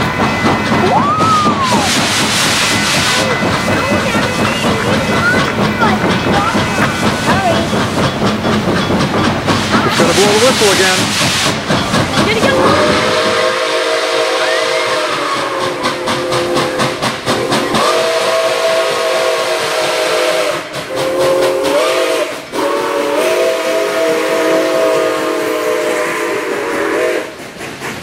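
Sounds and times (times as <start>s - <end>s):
steam locomotive whistle: 0.0s - 5.5s, 12.2s - 27.6s
moving train knocks: 0.0s - 28.0s
steam hissing: 0.0s - 28.0s.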